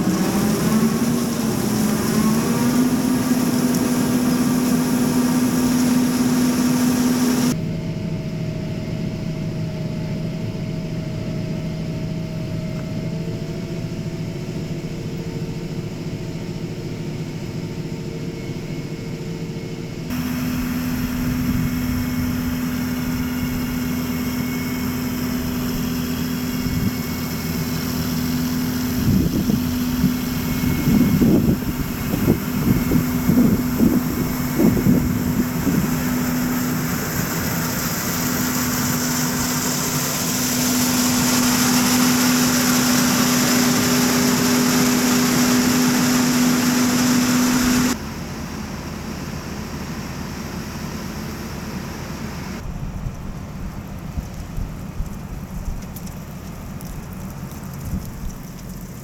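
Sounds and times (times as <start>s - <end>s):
combine machinery running: 0.0s - 7.6s, 20.1s - 59.0s
tractor engine running: 0.0s - 7.6s, 20.1s - 59.0s.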